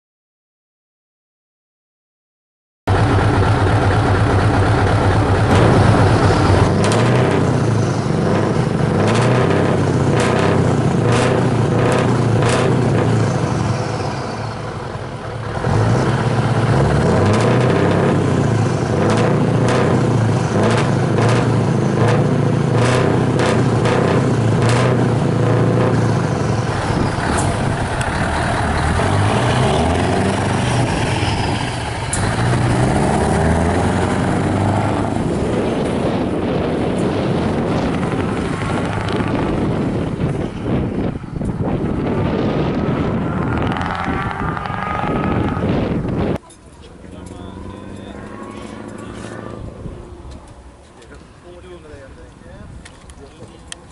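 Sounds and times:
diesel truck engine running: 0:02.9 - 0:53.9.

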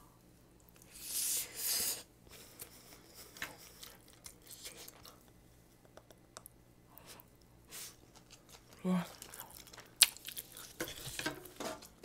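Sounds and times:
crunchy chewing: 0:07.8 - 0:11.2.

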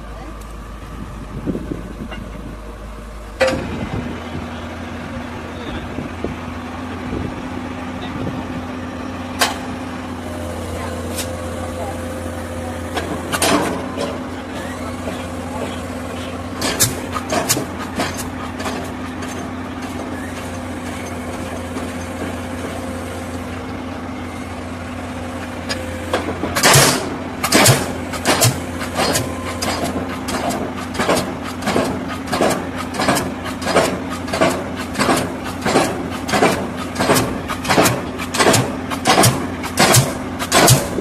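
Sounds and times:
excavator engine idling: 0:00.0 - 0:41.0
pile hammer striking a pile: 0:26.6 - 0:41.0.

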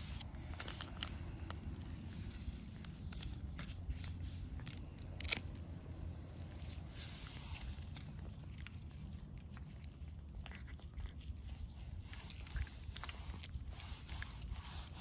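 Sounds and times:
cat chewing: 0:00.0 - 0:15.0.

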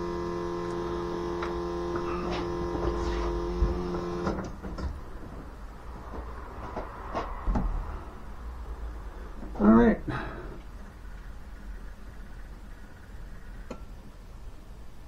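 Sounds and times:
electric fuel pump humming: 0:00.0 - 0:04.5.

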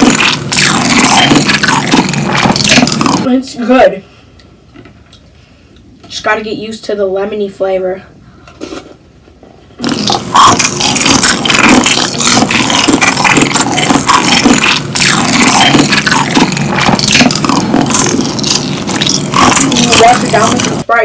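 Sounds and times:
cereal being chewed: 0:00.0 - 0:03.3, 0:09.8 - 0:20.8.

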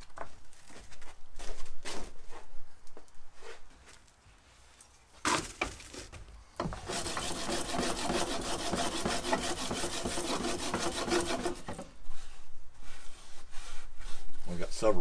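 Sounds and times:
wood scraping on steel rails: 0:05.3 - 0:14.6
sand rasping through screen: 0:06.8 - 0:15.0.

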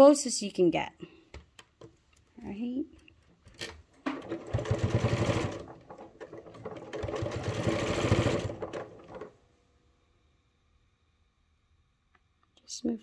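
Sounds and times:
electric sewing machine stitching: 0:03.6 - 0:09.3.

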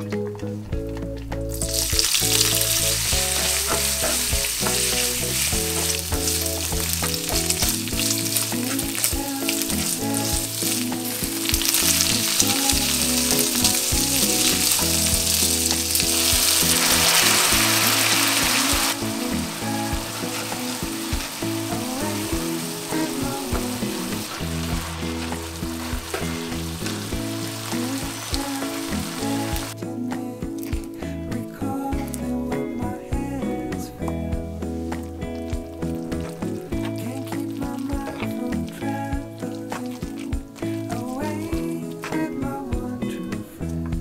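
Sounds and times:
soft background music: 0:00.0 - 0:44.0
bacon and pasta sizzling in a pan: 0:01.6 - 0:29.8.

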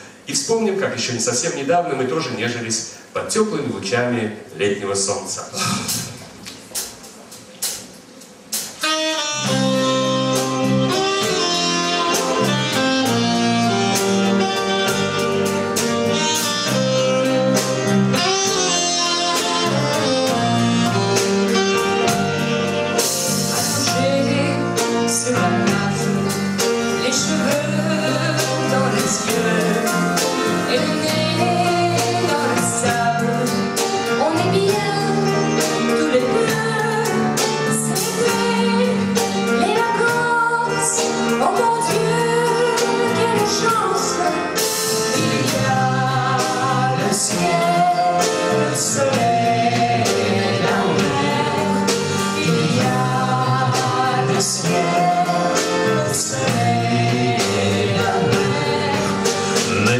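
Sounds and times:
small band with drums guitar saxophone: 0:05.6 - 0:59.9
woman and man singing duet: 0:23.5 - 0:59.9.

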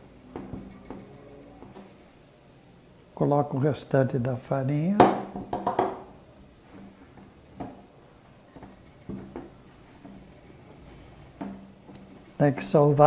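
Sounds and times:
dough knocking against glass bowl: 0:05.0 - 0:06.1.

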